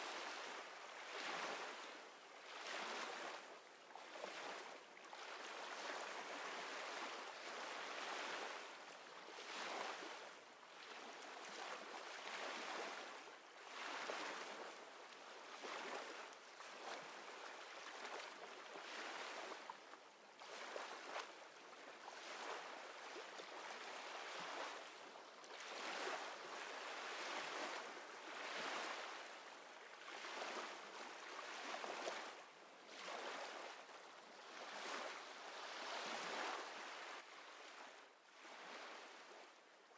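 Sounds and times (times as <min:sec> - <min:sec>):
waves washing on shore: 0:22.0 - 0:33.8.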